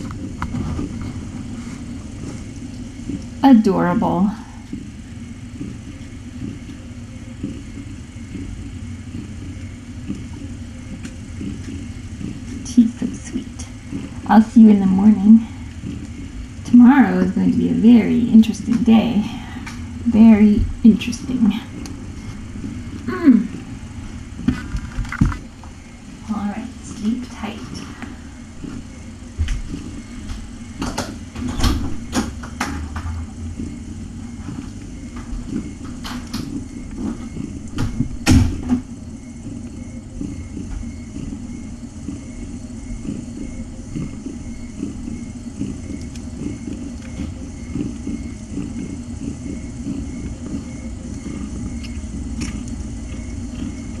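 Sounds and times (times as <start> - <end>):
cat purring: 0.0 - 54.0
sharp clicks and knocks: 29.4 - 33.2.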